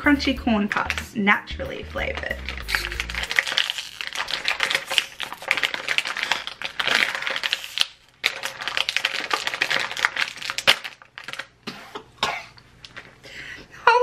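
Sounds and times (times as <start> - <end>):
plastic bag crinkling: 0.7 - 1.2, 1.8 - 11.6, 12.6 - 13.2
bag seam popping open: 2.2 - 8.0.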